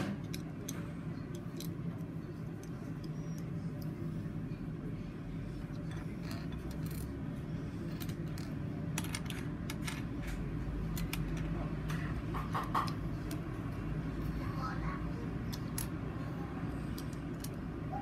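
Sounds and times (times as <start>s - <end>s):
steady low hum: 0.0s - 18.0s
plastic pieces clicking and rattling: 7.9s - 11.5s.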